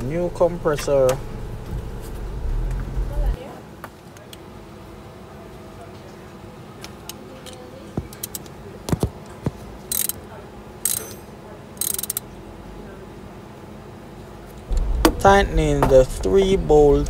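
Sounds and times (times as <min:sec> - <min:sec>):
ratchet wrench clicking: 0:09.9 - 0:10.2, 0:10.8 - 0:11.2, 0:11.8 - 0:12.2.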